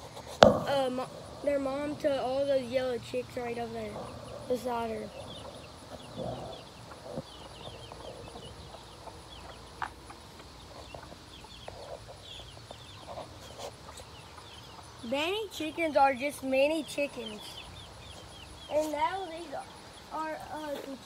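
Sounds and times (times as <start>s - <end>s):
hen clucking: 0.0s - 15.3s
chicks peeping: 0.0s - 21.0s.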